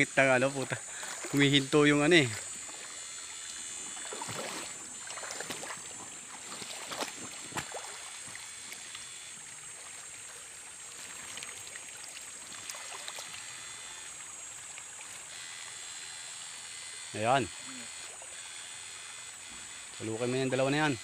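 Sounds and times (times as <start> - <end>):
stream water splashing: 0.0 - 21.0
water trickling: 0.0 - 21.0.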